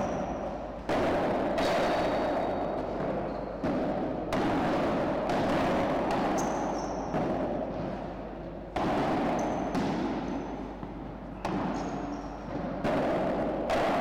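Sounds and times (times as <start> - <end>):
ball struck by rackets: 0.0 - 14.0
shoe squeaks: 3.2 - 3.6, 11.8 - 12.4.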